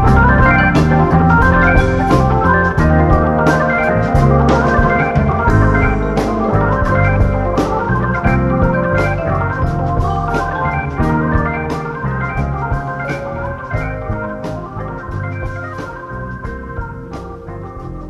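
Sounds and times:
bass notes: 0:00.0 - 0:18.0
hammond organ chords: 0:00.0 - 0:18.0.

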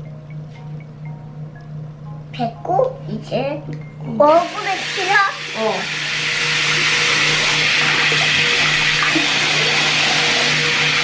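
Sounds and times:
low hum: 0:00.0 - 0:04.8
tap water running: 0:04.2 - 0:11.0.

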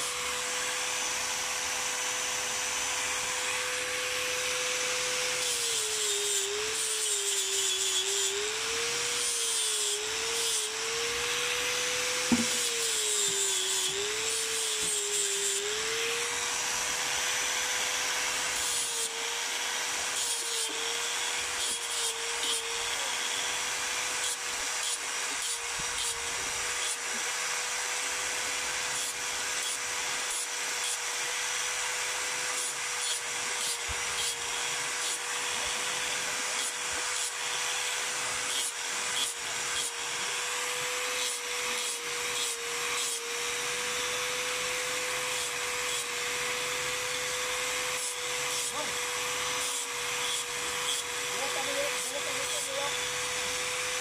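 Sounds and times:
angle grinder humming: 0:00.0 - 0:54.0
grinding horn rasp: 0:47.0 - 0:53.2.

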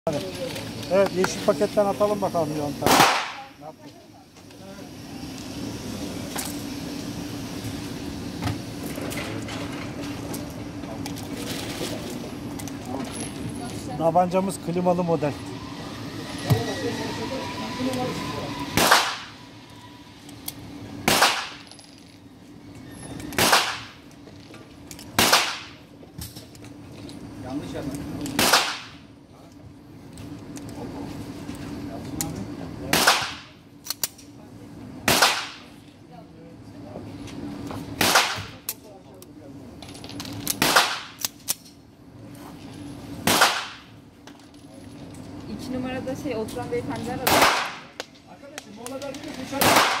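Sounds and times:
pistol shots with echo: 0:49.6 - 0:50.0.

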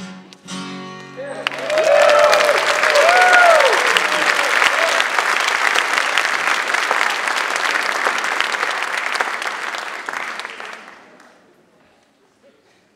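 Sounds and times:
audience applauding: 0:01.3 - 0:11.4.

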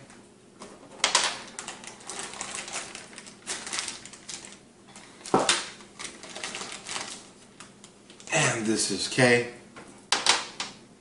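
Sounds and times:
plastic bags of screws crinkling: 0:01.1 - 0:07.3.

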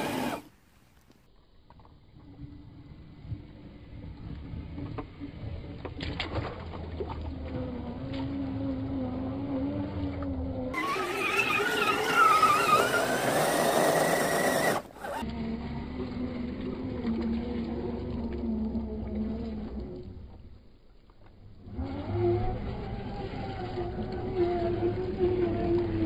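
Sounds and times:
toy car electric motor whine: 0:00.0 - 0:00.5, 0:08.5 - 0:16.6, 0:21.7 - 0:26.0.

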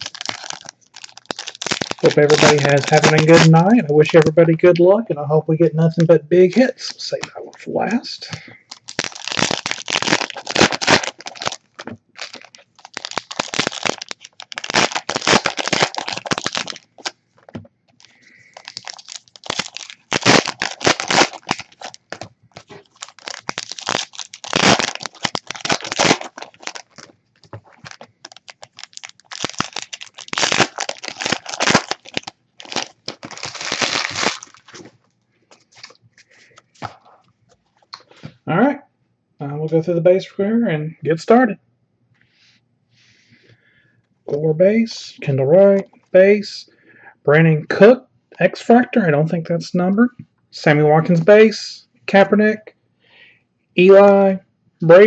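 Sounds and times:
foil wrappers tearing and crinkling: 0:00.0 - 0:04.3, 0:08.6 - 0:34.9.

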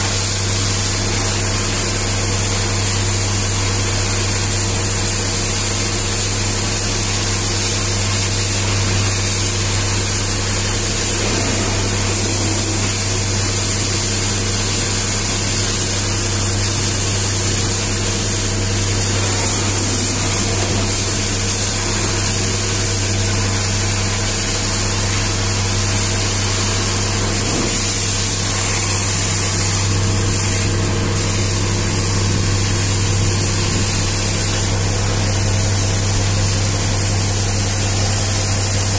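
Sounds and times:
high-pressure water jet spattering: 0:00.0 - 0:38.9
machine drone with low hum: 0:00.0 - 0:38.9.

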